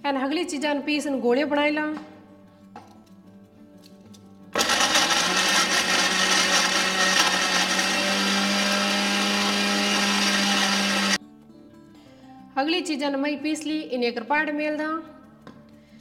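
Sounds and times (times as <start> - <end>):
mixer grinder running: 4.6 - 11.2.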